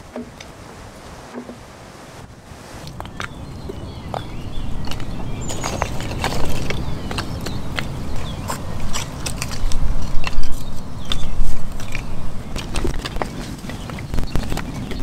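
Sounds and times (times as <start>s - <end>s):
kindling wood clattering: 4.9s - 15.0s.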